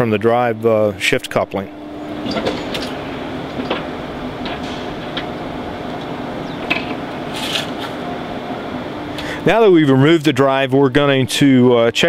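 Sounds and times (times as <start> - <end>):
steady mechanical hum: 0.0 - 12.0.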